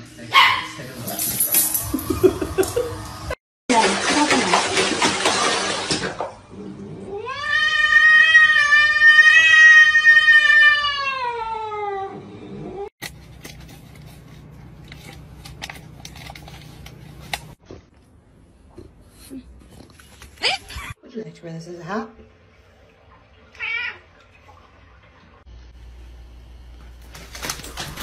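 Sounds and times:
cat yowling: 7.1s - 12.9s.

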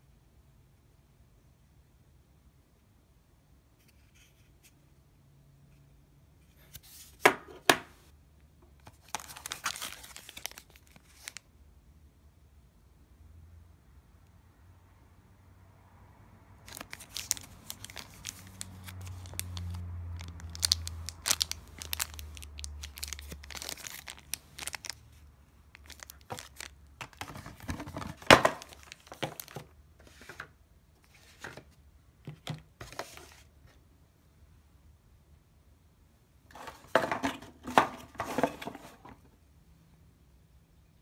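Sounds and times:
plastic bag crinkling and tearing: 8.8s - 11.4s, 16.7s - 25.1s, 25.7s - 29.6s.

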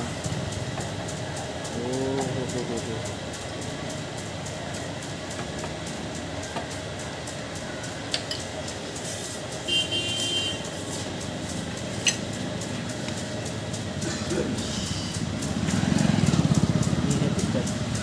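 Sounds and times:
street background noise: 0.0s - 18.0s
small metal clicks: 12.0s - 12.4s.

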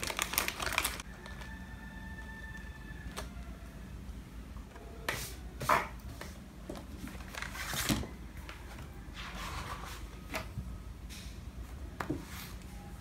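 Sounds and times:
plastic wrapper crinkling: 0.0s - 1.8s, 7.0s - 8.1s
notebooks and folder rustling: 5.1s - 10.8s.

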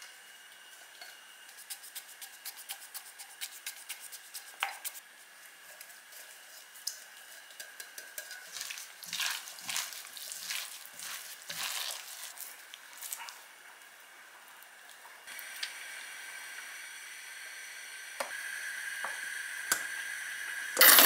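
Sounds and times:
wet squelching of chicken: 8.5s - 13.4s.

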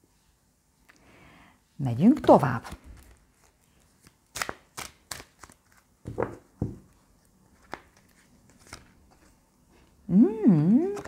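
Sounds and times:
cards shuffled and tapped: 2.1s - 9.4s.

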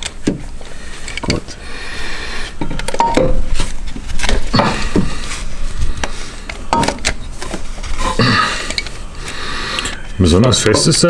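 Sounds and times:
metal tools knocking on metal: 10.6s - 11.0s.

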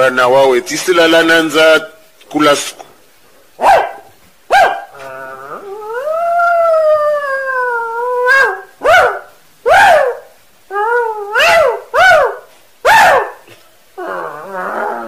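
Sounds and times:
dog yelping and howling: 3.6s - 13.4s, 14.0s - 15.0s.

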